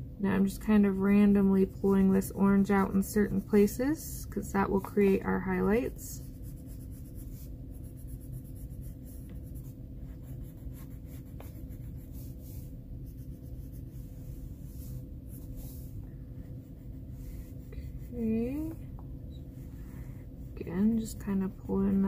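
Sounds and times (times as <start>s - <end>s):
steady low hum: 0.0s - 22.0s
pencil scratching on paper: 4.6s - 18.8s.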